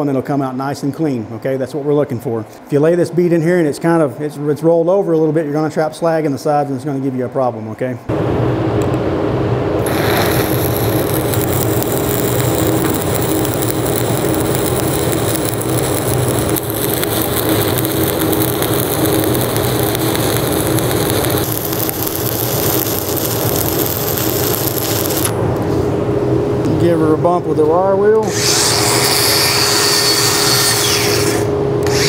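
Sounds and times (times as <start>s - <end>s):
welding arc crackling and sizzling: 9.8s - 25.4s, 28.3s - 32.0s.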